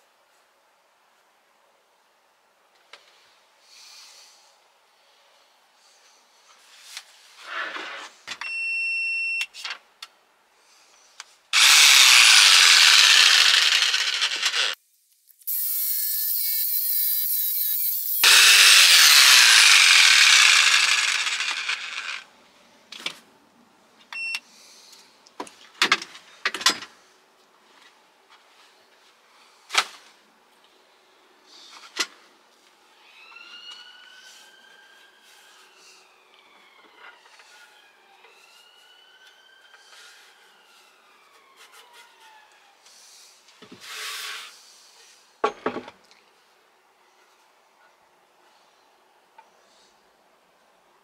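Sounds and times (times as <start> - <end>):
jigsaw cutting wood: 11.6 - 14.8, 15.5 - 22.2.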